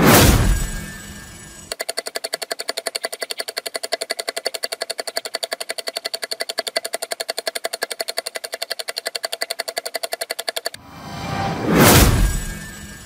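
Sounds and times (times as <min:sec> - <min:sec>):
rapid ticking: 0:01.6 - 0:10.8.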